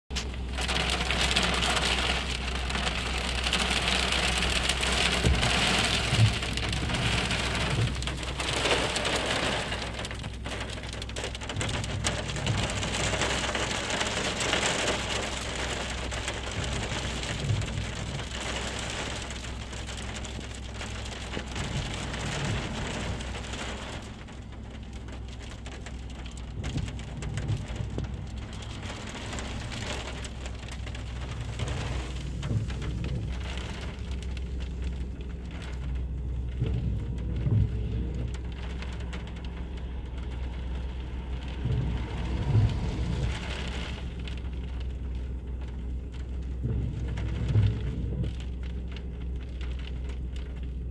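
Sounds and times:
hail pelting a car roof: 0.1 - 50.9.

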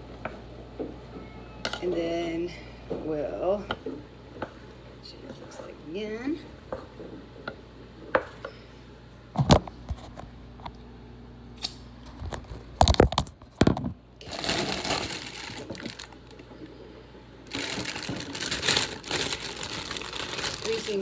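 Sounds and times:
plastic bag rustling: 14.2 - 16.5, 17.4 - 21.0.

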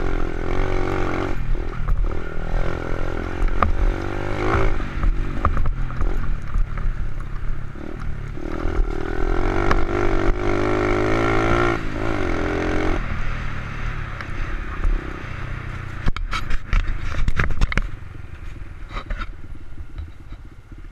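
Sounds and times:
motorcycle engine revving high: 0.0 - 7.0, 7.6 - 15.6.

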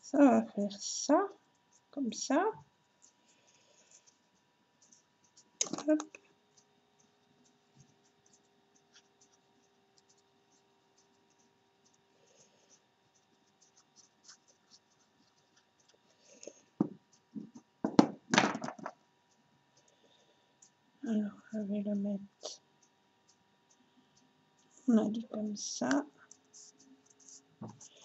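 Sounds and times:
pieces knocking on wooden table: 16.8 - 19.0.

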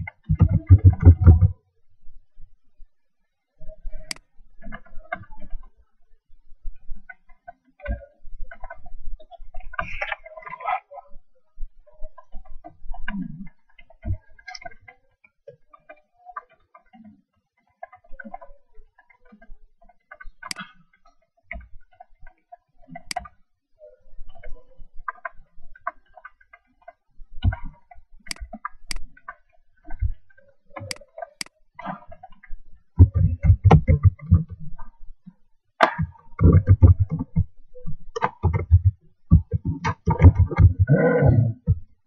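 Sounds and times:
laptop keyboard typing: 33.0 - 34.6, 36.4 - 37.4, 38.2 - 41.0.

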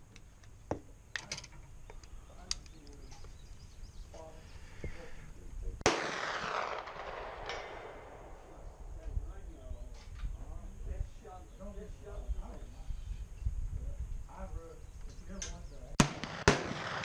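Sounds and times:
loud rifle shot: 5.8 - 8.6, 16.0 - 17.0.

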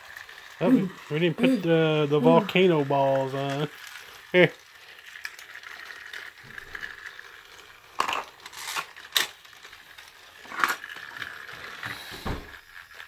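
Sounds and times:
faint high hum: 0.6 - 2.9
plastic toy pieces clacking: 2.5 - 12.0.

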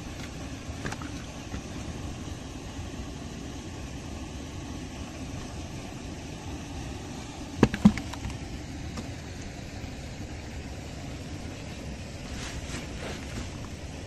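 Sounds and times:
steady low motor hum: 0.0 - 14.0
sharp knocks: 7.6 - 8.3.

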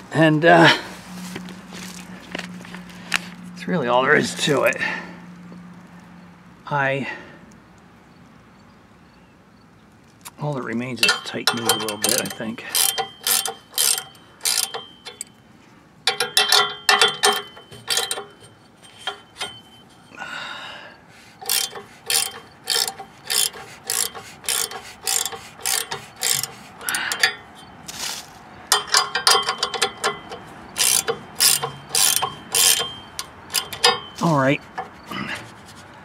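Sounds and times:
ratchet wrench clicking: 11.0 - 15.4, 16.0 - 19.7, 21.3 - 28.0, 28.7 - 35.0.

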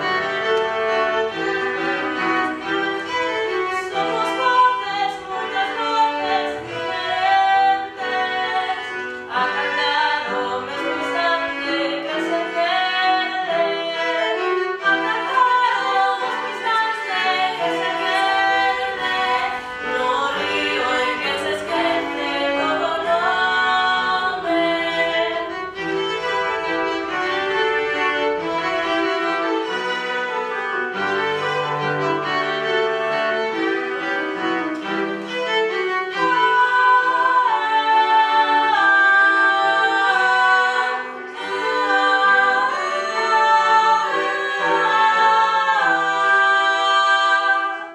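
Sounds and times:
slow classical string music: 0.0 - 47.9
violin melody: 0.0 - 47.9.

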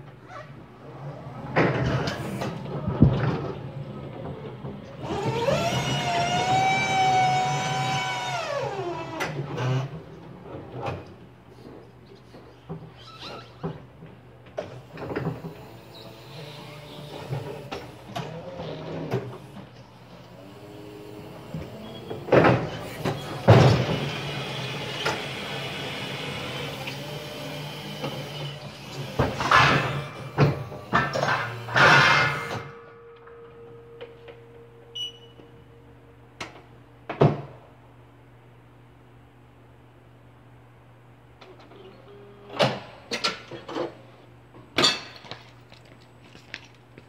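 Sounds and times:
hydraulic pump whirring: 3.5 - 10.0, 14.8 - 35.6
electric hum: 29.5 - 41.3.

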